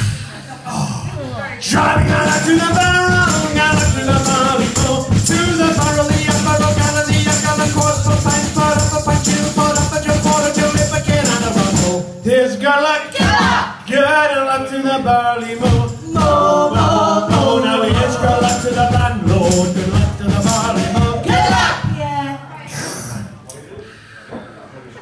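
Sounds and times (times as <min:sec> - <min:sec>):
people singing: 0:01.6 - 0:22.2
live folk band music: 0:01.7 - 0:12.3, 0:15.0 - 0:22.0.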